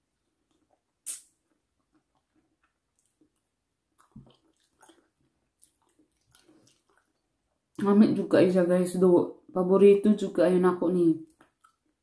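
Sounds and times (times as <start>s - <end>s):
chewing and wet mouth sounds: 0.1s - 8.0s, 11.2s - 12.0s.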